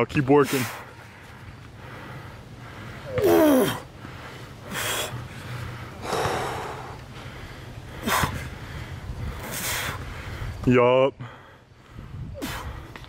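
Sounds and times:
forceful breath puffs: 0.4s - 10.6s, 11.2s - 13.0s
man breathing hard: 0.5s - 10.6s, 11.2s - 13.0s
man groaning: 3.1s - 3.8s.

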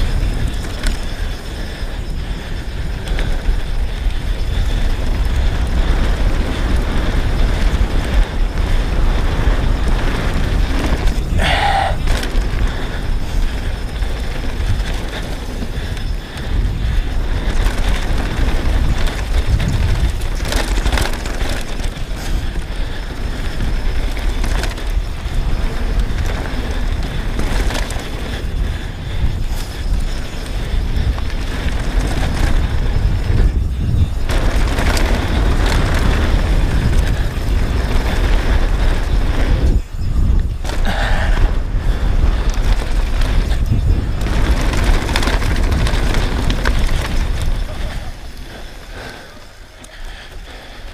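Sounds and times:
bike tyres rolling on dirt: 0.0s - 50.9s
wind buffeting microphone: 0.0s - 50.9s
bike knocking over bumps: 29.4s - 48.7s.

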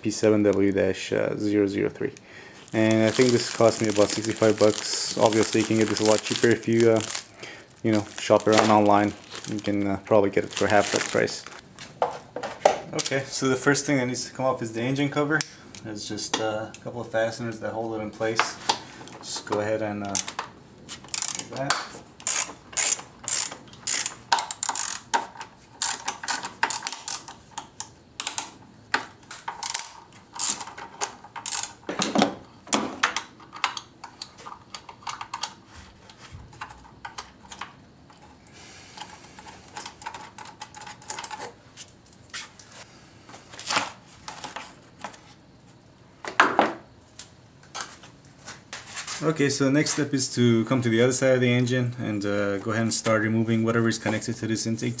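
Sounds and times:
socket ratchet clicking: 21.1s - 21.6s, 22.2s - 25.2s, 25.8s - 28.6s, 29.5s - 30.7s, 31.4s - 31.8s.

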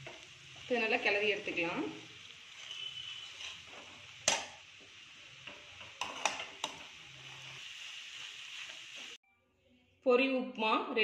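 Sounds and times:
metal spatula scraping puffed rice: 2.4s - 4.4s, 5.6s - 7.7s
spatula clanking on pan: 3.4s - 4.6s, 5.5s - 6.9s.

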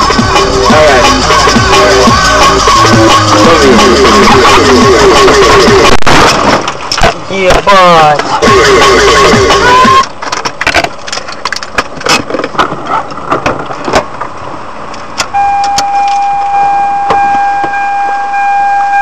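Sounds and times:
vehicle horn: 9.5s - 10.0s
sharp knocks and clattering: 10.1s - 14.3s.

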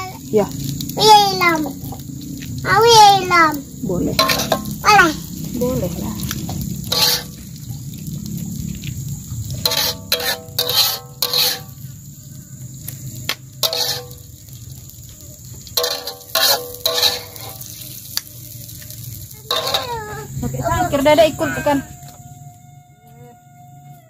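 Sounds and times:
steady low rumble: 0.0s - 22.0s
metal spatula scraping wok: 4.0s - 12.0s, 13.6s - 14.9s, 15.6s - 18.1s, 19.5s - 20.3s.

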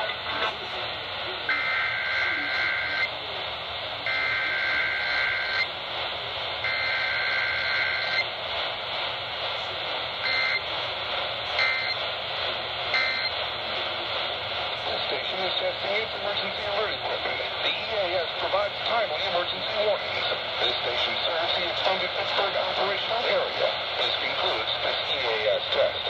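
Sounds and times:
radio static hiss: 0.0s - 26.0s
short data bursts: 6.6s - 8.3s, 10.2s - 10.8s, 11.6s - 12.0s, 12.9s - 13.4s.

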